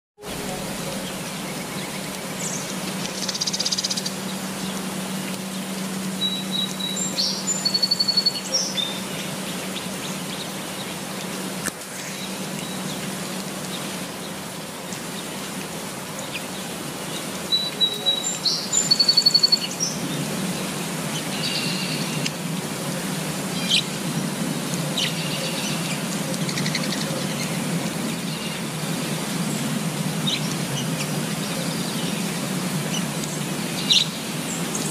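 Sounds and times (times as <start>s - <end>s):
rain falling on foliage: 0.2s - 34.9s
small birds chirping: 0.4s - 11.4s, 16.2s - 22.3s.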